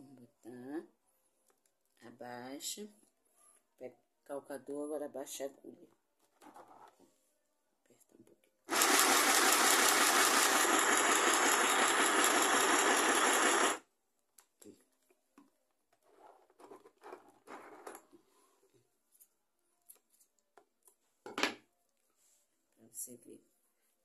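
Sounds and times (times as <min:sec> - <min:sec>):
electric sewing machine running: 0:08.7 - 0:13.8.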